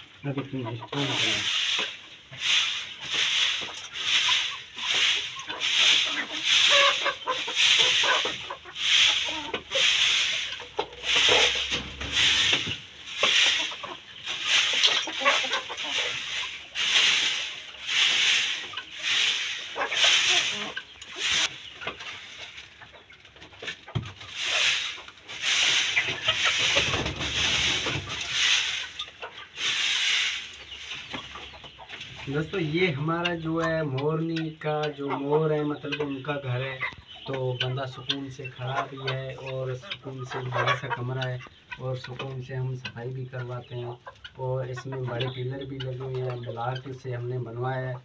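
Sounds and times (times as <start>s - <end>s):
broom sweeping gravel floor: 0.5s - 33.1s.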